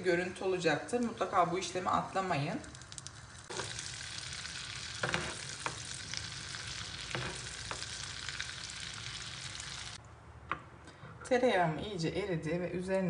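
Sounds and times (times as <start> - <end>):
butter sizzling in frying pan: 0.9 - 10.0.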